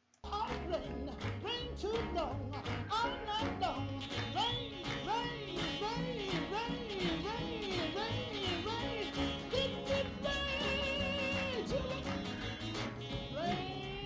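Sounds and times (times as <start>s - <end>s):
backing music: 0.3s - 14.0s
woman singing gospel: 2.9s - 12.4s.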